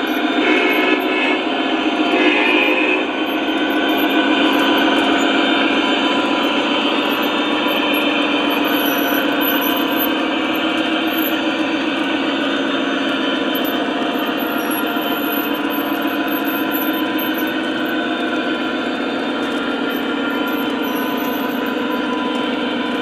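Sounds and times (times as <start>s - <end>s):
clatter of train wheels: 0.0s - 23.0s
model train rumbling on track: 0.0s - 23.0s.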